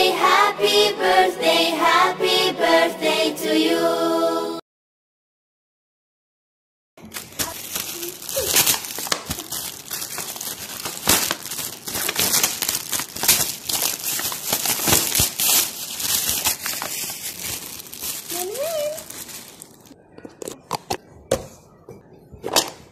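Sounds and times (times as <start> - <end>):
foil gift wrap crinkling: 7.0 - 20.0.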